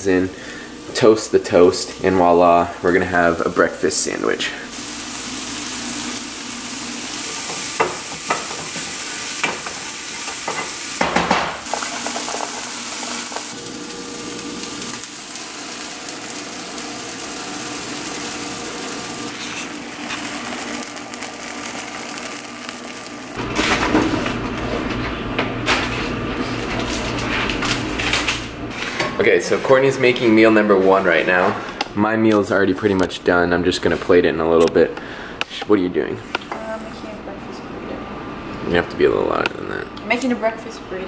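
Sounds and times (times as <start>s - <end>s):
meat sizzling in a frying pan: 0.0s - 23.4s.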